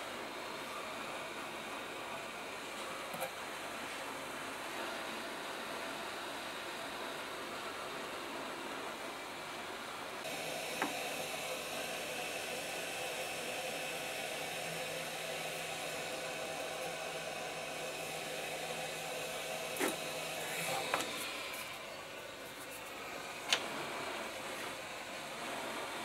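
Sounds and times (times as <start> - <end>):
hot air gun hissing: 10.3 - 21.8.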